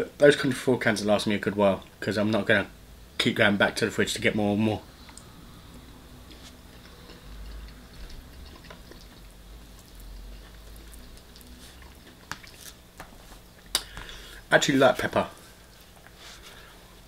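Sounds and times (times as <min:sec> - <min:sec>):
quiet chewing: 0:05.0 - 0:14.3.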